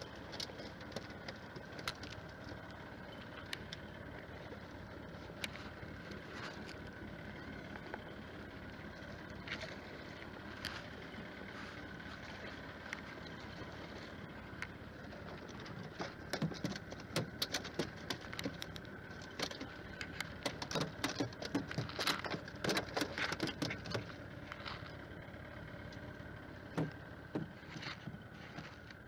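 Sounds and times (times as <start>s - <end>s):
boat engine idling: 0.0s - 29.0s
sharp knocks and clicks: 15.2s - 24.2s, 26.7s - 28.7s.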